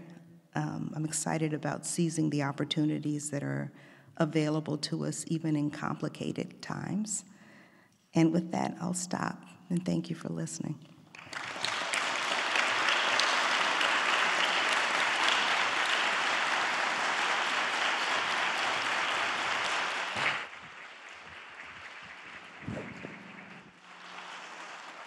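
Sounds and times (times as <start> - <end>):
audience applauding: 11.1 - 25.0.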